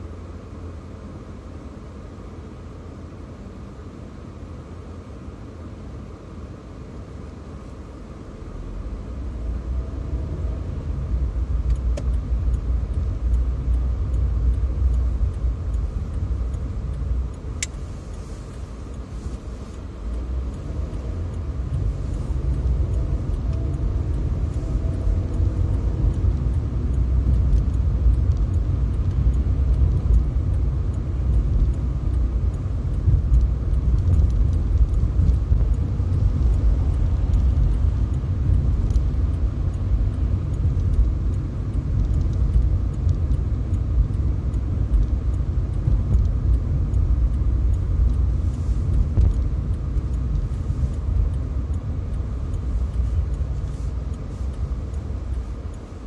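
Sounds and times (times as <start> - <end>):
car driving rumble: 0.0 - 56.0
sharp click: 17.6 - 17.8.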